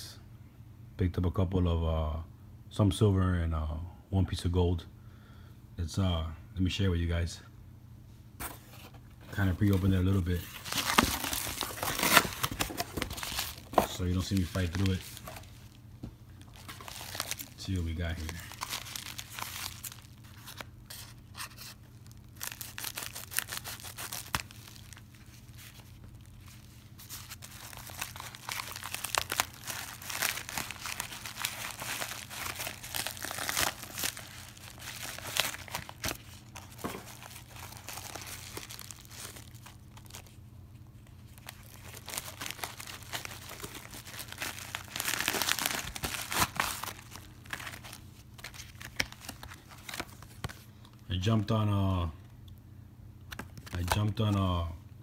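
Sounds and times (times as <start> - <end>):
padded mailer crinkling and tearing: 9.3 - 15.8, 16.4 - 40.4, 41.0 - 50.7.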